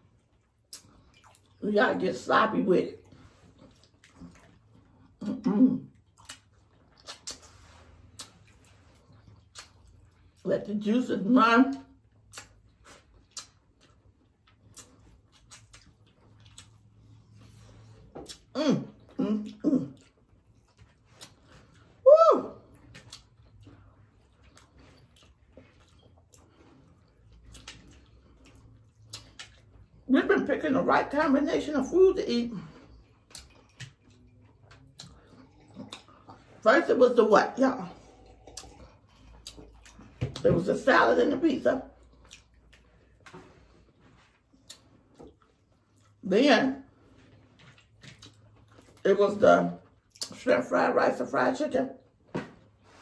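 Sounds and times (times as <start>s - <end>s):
lip smacks and mouth clicks: 0.0s - 1.6s, 3.0s - 5.2s, 5.9s - 10.4s, 12.0s - 17.4s, 18.1s - 18.5s, 19.5s - 21.9s, 22.7s - 30.1s, 33.0s - 36.5s, 38.1s - 40.5s, 42.0s - 43.4s, 44.4s - 46.2s, 47.6s - 49.0s, 49.9s - 50.4s
people chewing food: 0.0s - 10.5s, 11.7s - 40.8s, 41.7s - 50.4s
slurping: 37.6s - 40.4s.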